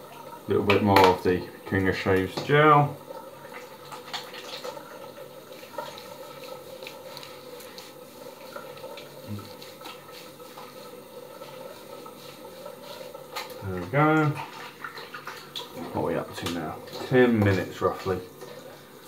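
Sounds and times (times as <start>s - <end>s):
wet gel rubbing on skin: 5.5s - 13.6s
steady hiss: 5.5s - 14.4s.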